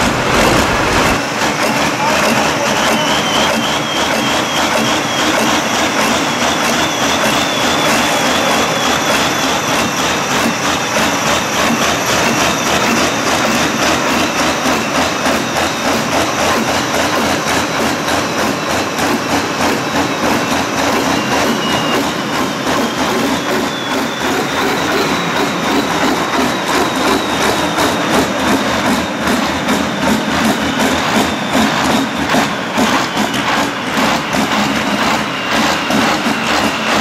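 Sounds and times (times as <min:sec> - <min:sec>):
tractor diesel engines running hard: 0:00.0 - 0:37.0.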